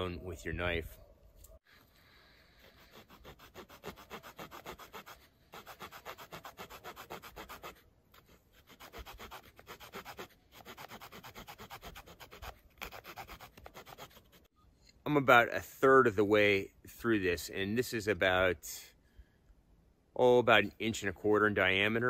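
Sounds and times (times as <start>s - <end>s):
saw rasping through wood: 2.6s - 14.5s.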